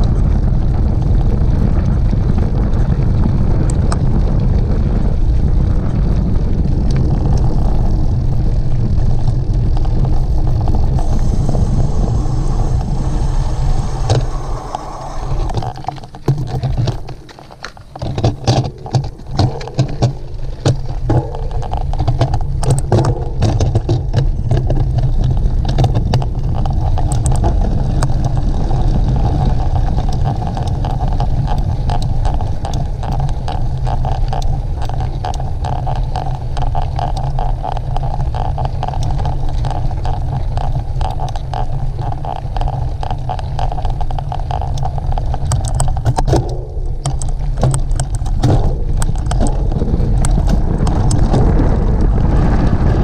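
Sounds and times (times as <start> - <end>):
bike rattling on rough ground: 0.0 - 53.0
wind buffeting microphone: 0.0 - 53.0.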